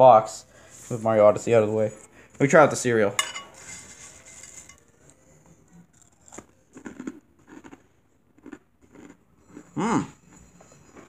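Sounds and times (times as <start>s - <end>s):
spoon scraping cereal in bowl: 3.3s - 4.9s
chewing cereal crunches: 5.9s - 9.8s.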